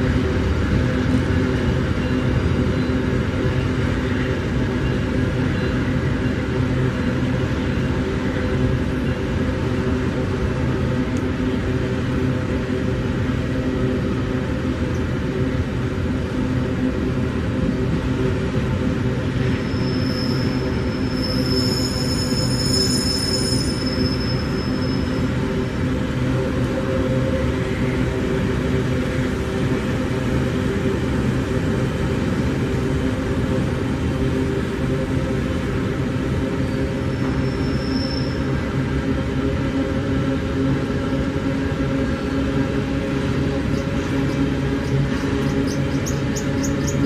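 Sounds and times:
freight train wheels rumbling on rail: 0.0 - 47.0
high-pitched wheel squeal: 19.5 - 25.4, 36.6 - 38.6.

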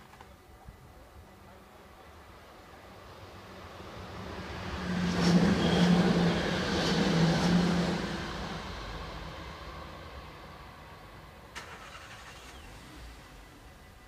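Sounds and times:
train wheels rushing on rail: 3.1 - 11.0.

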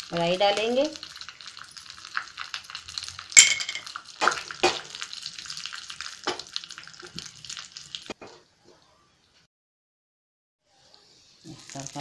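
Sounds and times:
seeds crackling in hot oil: 0.0 - 8.2, 10.6 - 12.0.

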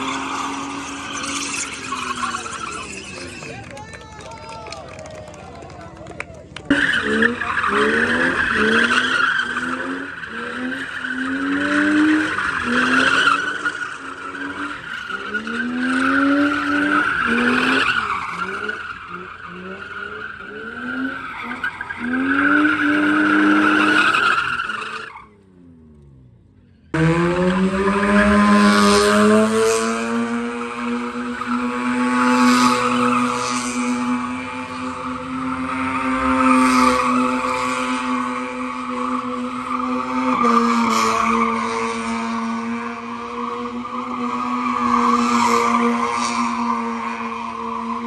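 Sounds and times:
rotary engine revving high: 0.0 - 3.8, 6.7 - 48.0
tyres squealing: 0.1 - 3.7
car engine revving: 6.6 - 48.0.

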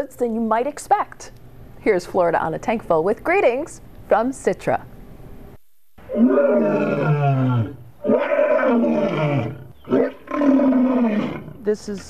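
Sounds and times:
lion roaring: 6.0 - 11.6.

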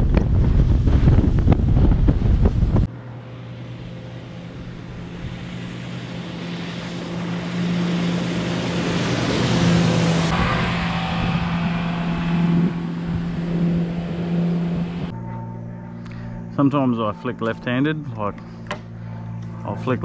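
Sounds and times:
wind rushing over microphone: 0.0 - 15.2
outboard engine running: 0.0 - 20.0.

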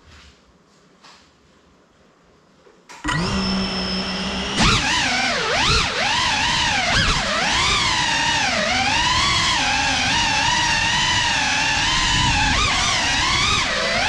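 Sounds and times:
drone propellers whining: 3.1 - 14.0.

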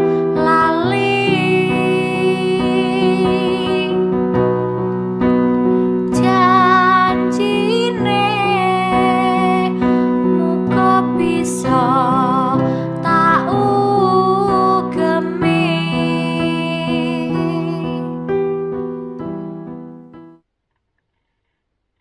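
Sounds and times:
keyboard chords: 0.0 - 20.4.

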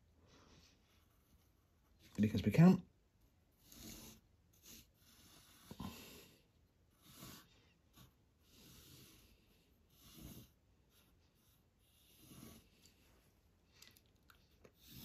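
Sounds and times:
pencil scratching on paper: 0.4 - 2.3, 3.2 - 13.4, 14.5 - 15.0
soft breathing: 3.6 - 15.0.

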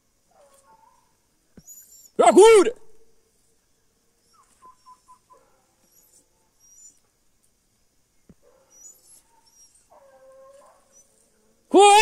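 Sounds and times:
distant dogs yelping: 4.3 - 7.0, 8.4 - 11.1.

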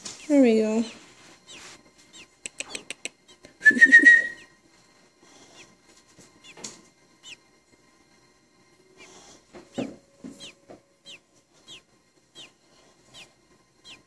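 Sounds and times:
nestlings peeping: 0.0 - 7.8, 8.7 - 14.0
sharp clicks: 2.4 - 3.6.

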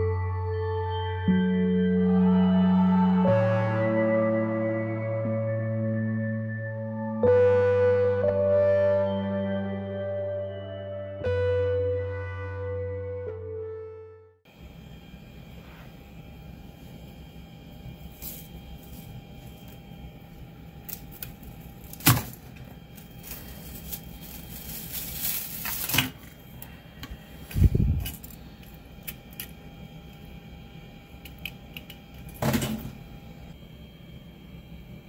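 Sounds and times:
faint steady hum: 14.5 - 35.0.

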